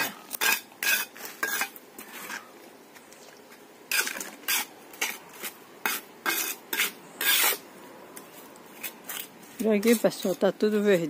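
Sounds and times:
trowel scraping wet mortar: 0.0s - 2.5s, 3.9s - 7.6s.

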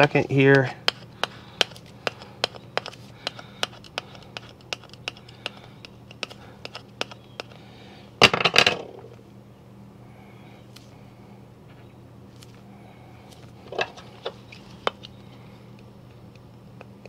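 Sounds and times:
plastic scraper rubbing on disc: 0.0s - 7.6s.

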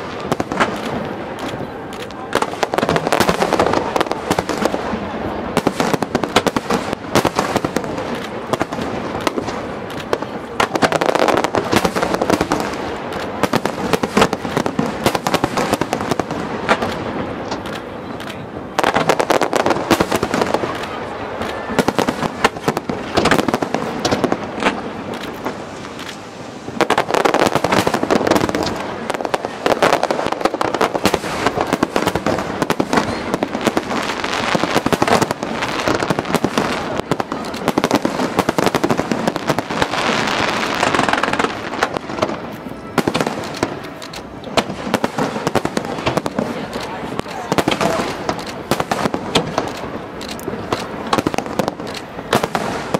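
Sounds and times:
fireworks bangs and crackling: 0.0s - 52.9s.

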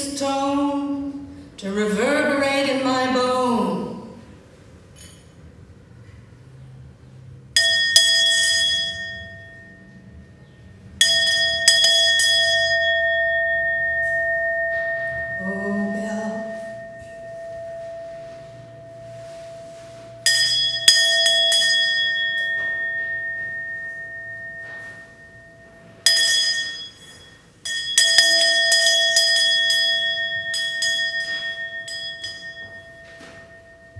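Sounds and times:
handbell ringing: 7.6s - 10.1s, 11.0s - 33.9s.

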